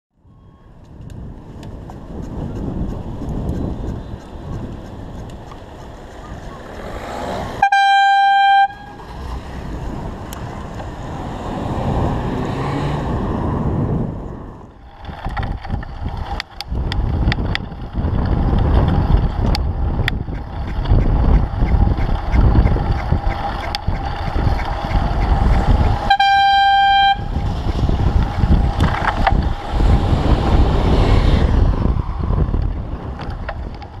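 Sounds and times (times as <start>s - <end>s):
wind and road noise: 0.1s - 34.0s
horn blast: 7.5s - 9.0s, 26.0s - 27.4s.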